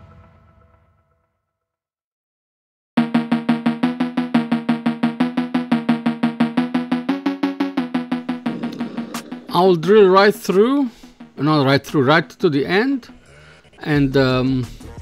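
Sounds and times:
rapidly repeated pitched note: 3.0 - 11.4.

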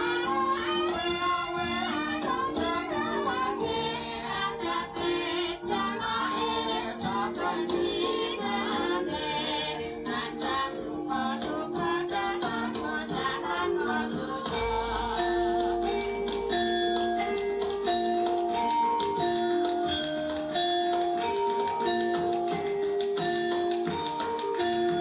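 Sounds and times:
people singing: 0.0 - 19.4
percussion beat: 0.0 - 25.0.

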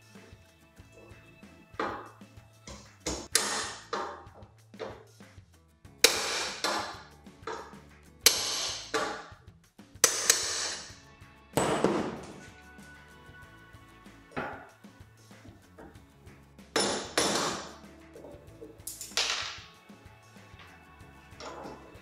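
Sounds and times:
hammer striking metal bracket: 3.1 - 4.2, 6.0 - 7.0, 8.3 - 9.3, 10.0 - 10.9.

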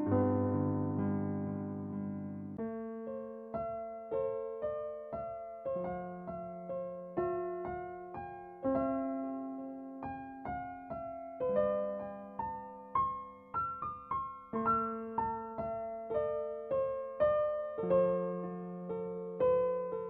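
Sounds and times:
gentle piano melody: 0.0 - 20.0.

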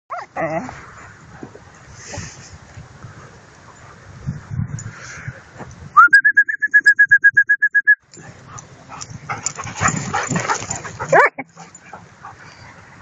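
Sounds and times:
trilled whistle: 6.0 - 8.0.

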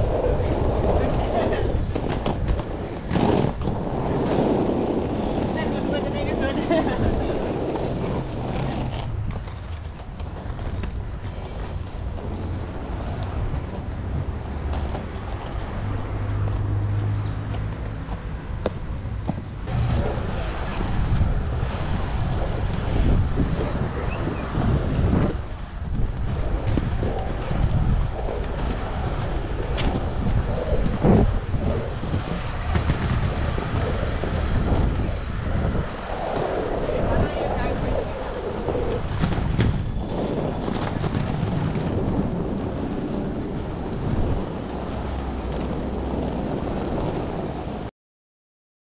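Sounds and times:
skate wheels rolling on asphalt: 0.0 - 47.9
wind on microphone: 0.0 - 47.9.

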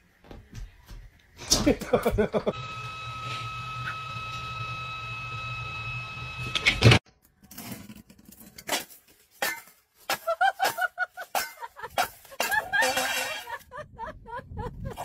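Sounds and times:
low hum: 1.5 - 7.0
steady high whine: 2.4 - 7.0
metal bowl scraping on tiled steps: 11.4 - 13.6.

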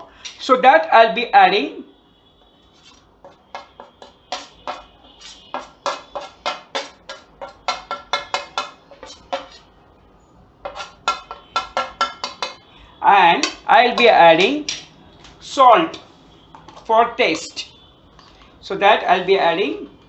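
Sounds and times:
spoon scraping metal plate: 0.0 - 0.4, 2.7 - 9.7, 10.6 - 14.9, 15.8 - 18.4.

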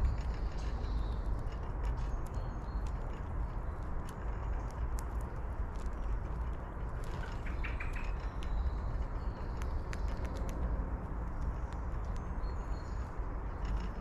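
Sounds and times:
low outdoor rumble: 0.0 - 14.0
sharp ticks: 0.0 - 14.0
bird twitter: 7.1 - 10.2.

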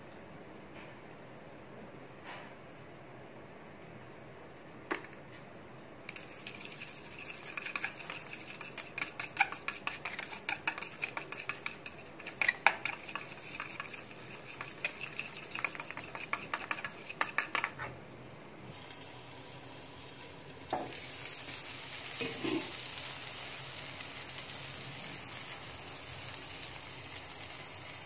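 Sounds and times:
whisk clinking in steel bowl: 6.1 - 17.8.

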